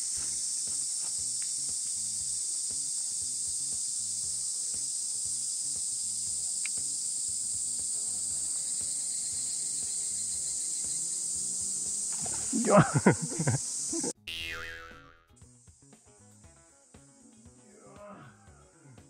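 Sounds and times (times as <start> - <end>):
cicadas chorus: 0.0 - 14.7
background music: 0.2 - 19.0.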